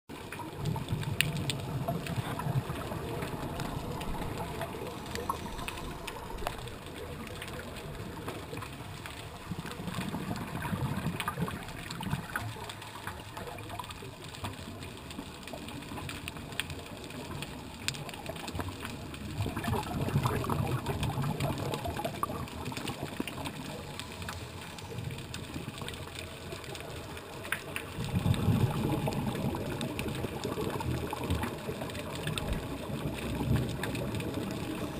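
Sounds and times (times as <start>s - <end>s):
regulator bubbles gurgling: 0.1s - 34.9s
faint clicks: 0.3s - 10.2s.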